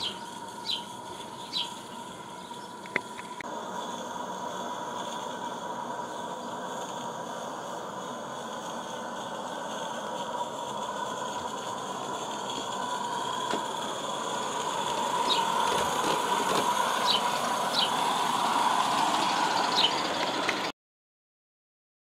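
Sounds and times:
model locomotive whirring: 0.0s - 20.7s.

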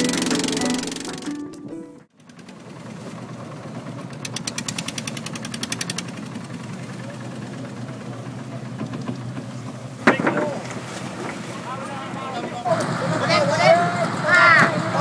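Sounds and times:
rapid even knocking: 0.0s - 1.4s
boat engine idling: 0.0s - 15.0s.

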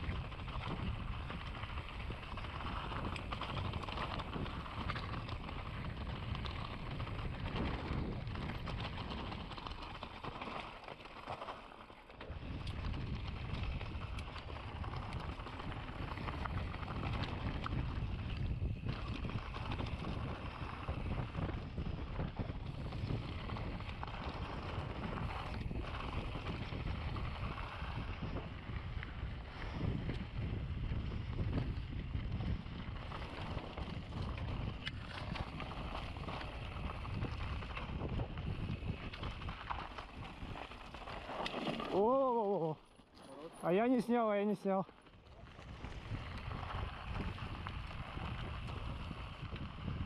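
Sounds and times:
wind buffeting microphone: 0.0s - 10.4s, 12.3s - 42.8s, 45.3s - 50.0s
tyres and bike rattling: 0.1s - 49.8s.

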